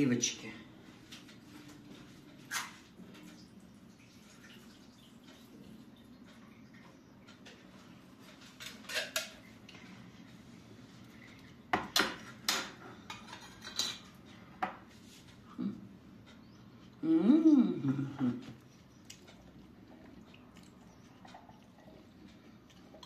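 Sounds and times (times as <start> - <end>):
cutlery clinking against dishes: 8.6 - 9.4, 11.8 - 14.2.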